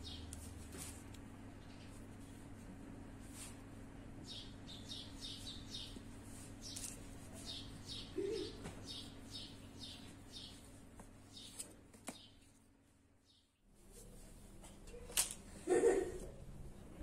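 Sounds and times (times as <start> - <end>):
small bird chirping: 0.0 - 0.3, 4.2 - 10.7.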